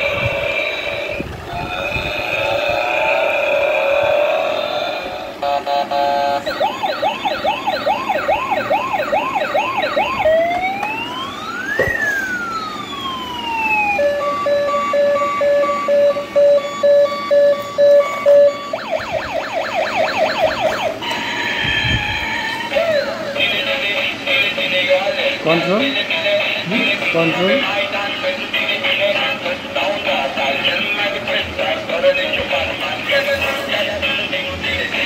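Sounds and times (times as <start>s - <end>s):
toy electronic siren: 5.4s - 23.3s.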